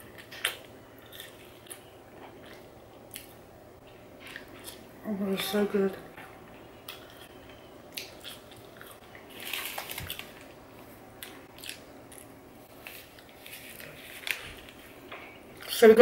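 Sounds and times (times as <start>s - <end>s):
person chewing chips: 0.0s - 3.4s, 6.9s - 10.6s, 11.2s - 14.9s.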